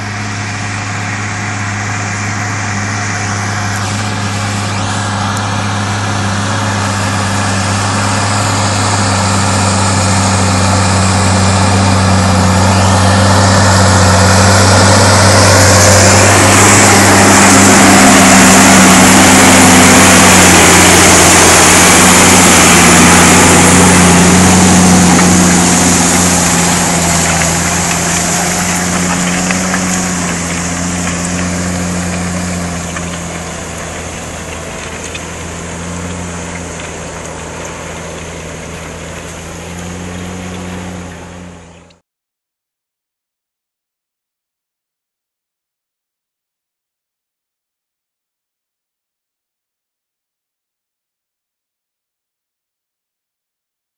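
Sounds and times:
tractor diesel engine under load: 0.0s - 42.0s.

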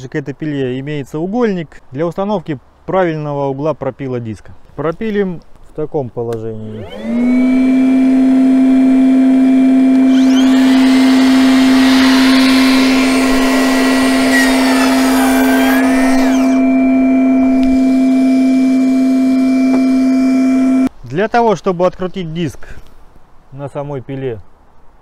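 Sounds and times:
dust extractor humming: 6.6s - 20.9s
miter saw cutting wood: 6.6s - 20.9s.

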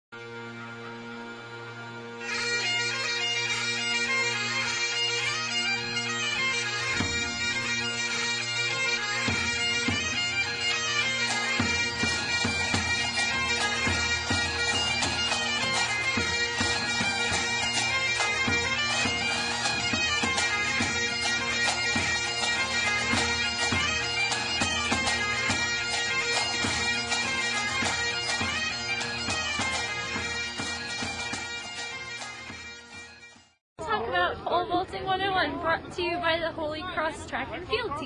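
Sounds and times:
drums beating: 11.2s - 33.4s.

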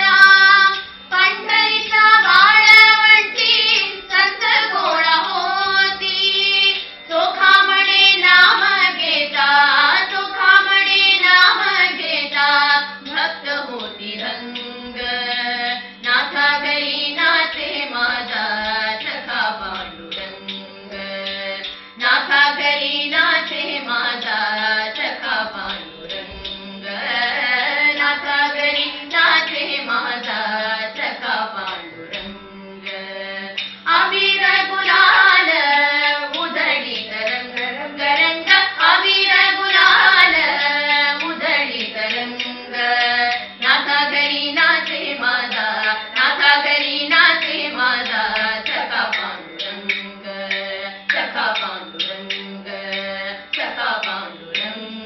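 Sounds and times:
women singing together: 0.0s - 55.0s.

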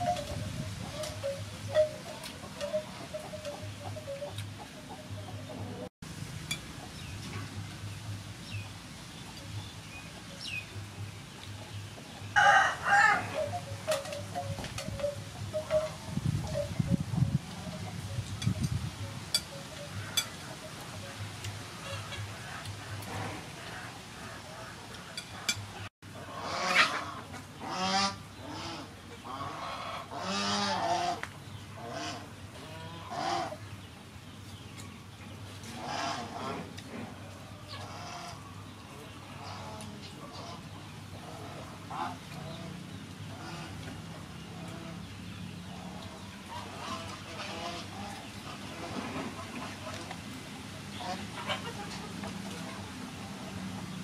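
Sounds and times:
fowl honking calls: 0.0s - 5.9s, 12.4s - 16.8s, 17.4s - 25.6s
rooster crowing: 12.4s - 13.6s.

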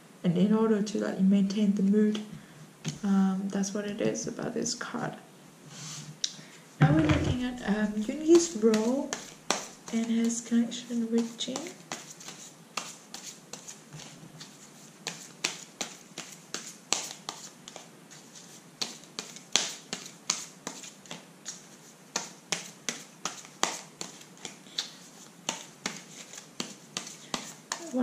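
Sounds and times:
cards being shuffled: 8.3s - 10.3s, 11.2s - 28.0s.

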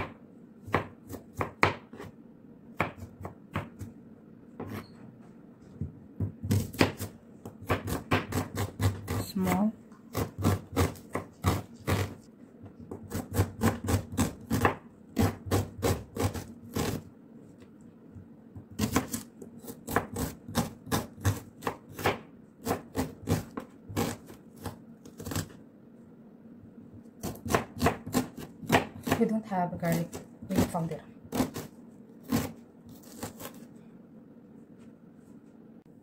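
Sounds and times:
knife chopping on plastic board: 0.0s - 2.1s, 2.8s - 3.9s, 5.8s - 12.2s, 12.8s - 17.0s, 18.6s - 25.6s, 27.2s - 29.3s.

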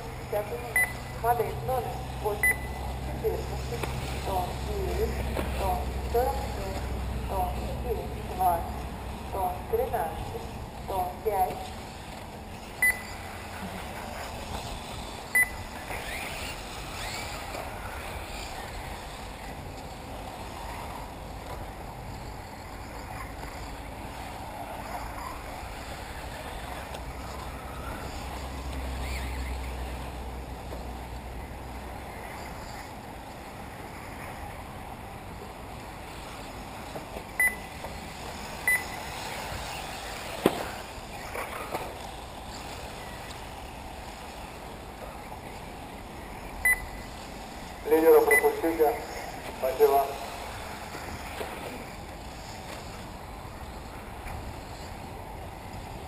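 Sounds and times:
rc car motors whirring: 0.0s - 56.0s
short high beeps: 0.7s - 1.2s, 2.4s - 2.8s, 12.8s - 13.1s, 15.4s - 15.6s, 37.4s - 37.7s, 38.7s - 39.0s, 46.6s - 47.0s, 48.2s - 48.6s.

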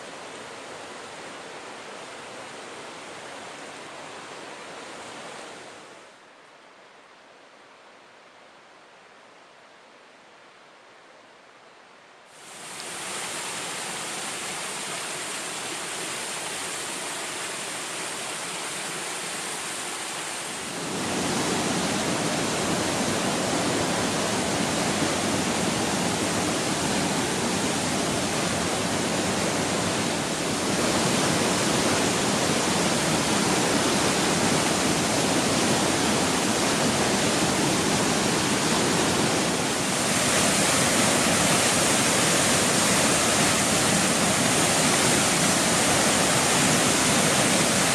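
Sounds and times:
waterfall rushing: 12.4s - 47.9s.

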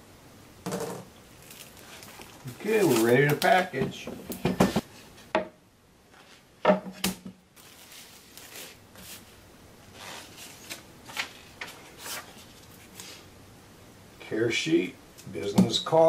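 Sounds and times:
plastic wrap crinkling: 1.2s - 3.8s, 7.6s - 13.2s.

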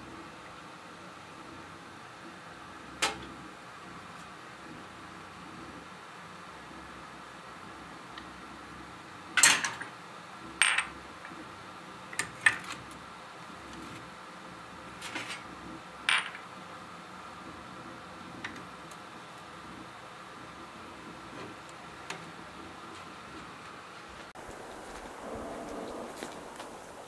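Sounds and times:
glass cups clinking on metal tray: 16.1s - 16.4s.

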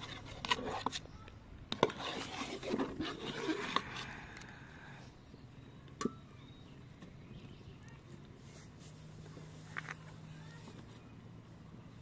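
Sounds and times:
spatula scraping metal pot: 0.0s - 1.1s, 1.7s - 4.4s.

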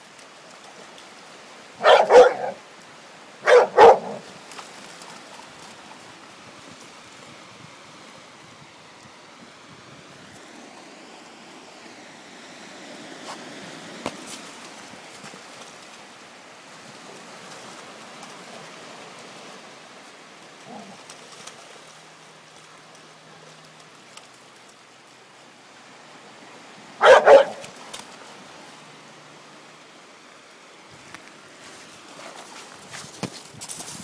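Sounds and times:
small waves on shore: 0.0s - 34.0s
dog barking: 1.8s - 2.6s, 3.4s - 4.2s, 27.0s - 27.7s.

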